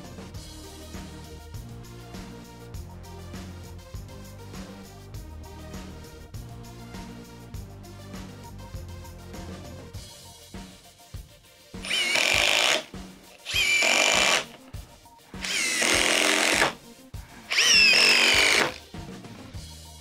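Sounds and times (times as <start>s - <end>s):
background music with steady beat: 0.0s - 20.0s
impact driver motor whine: 11.8s - 14.6s, 15.4s - 16.8s, 17.5s - 18.8s.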